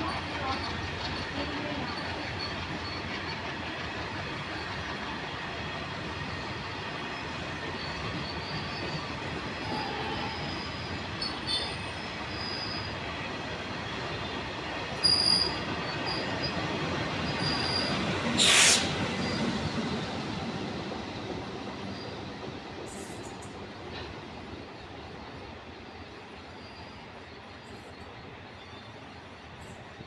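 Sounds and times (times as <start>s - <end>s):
freight train wheels rumbling: 0.0s - 30.0s
high-pitched wheel squeals: 15.0s - 16.5s.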